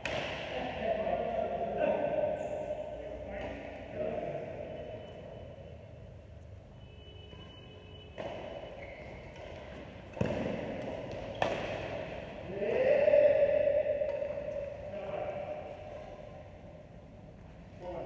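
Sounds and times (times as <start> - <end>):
racket striking shuttlecock: 0.0 - 0.5, 8.2 - 12.4, 13.8 - 14.8.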